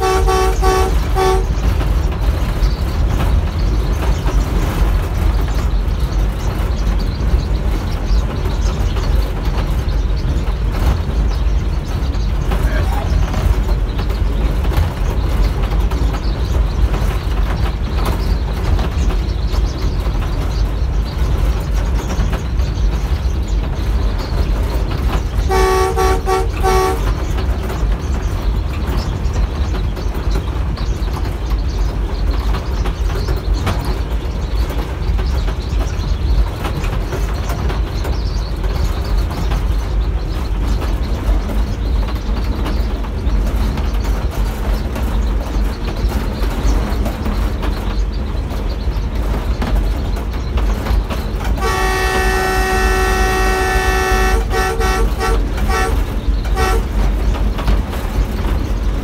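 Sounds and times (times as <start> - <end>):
locomotive horn blast: 0.0 - 1.8, 25.4 - 27.4, 51.5 - 57.2
locomotive rumbling on rails: 0.0 - 59.0.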